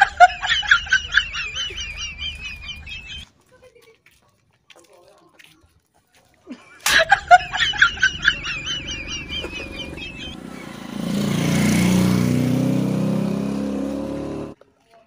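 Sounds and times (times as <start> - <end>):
motorcycle engine running: 9.1 - 14.6.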